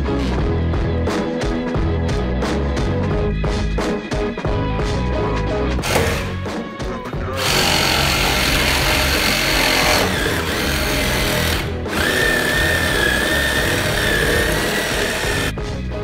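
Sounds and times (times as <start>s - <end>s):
background music: 0.0s - 16.0s
reciprocating saw cutting wood: 5.8s - 6.4s, 7.4s - 15.5s.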